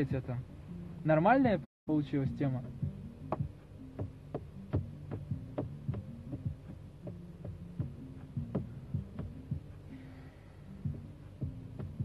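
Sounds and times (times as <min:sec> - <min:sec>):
deep bass line: 0:02.2 - 0:10.0, 0:10.6 - 0:12.0.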